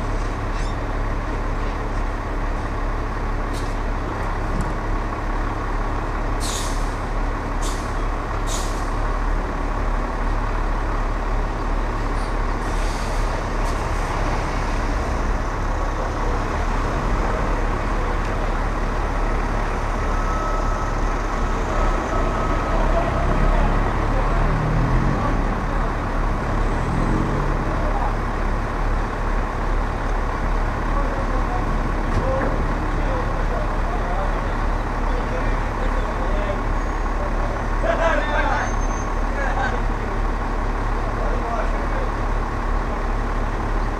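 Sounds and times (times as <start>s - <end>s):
truck engine idling: 0.0s - 43.9s
air brake hisses: 6.4s - 7.0s.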